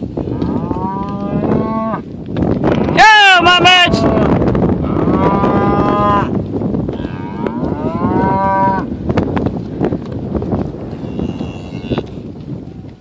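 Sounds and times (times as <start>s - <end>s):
cattle mooing: 0.3s - 2.0s, 3.8s - 6.3s, 6.9s - 8.9s, 10.9s - 12.2s.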